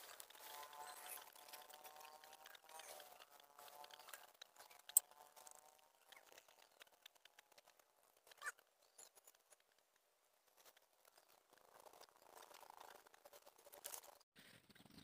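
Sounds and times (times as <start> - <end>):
food crackling on charcoal grill: 0.0 - 7.8.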